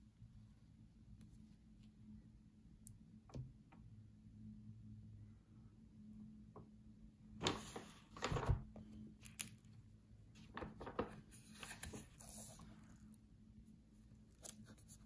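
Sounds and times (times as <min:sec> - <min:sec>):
paper rustling: 0:07.4 - 0:09.6, 0:10.4 - 0:13.0.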